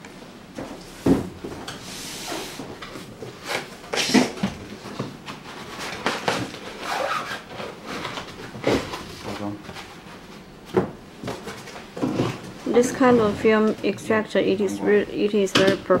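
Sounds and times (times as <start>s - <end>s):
foam packing rubbing: 1.8s - 10.4s.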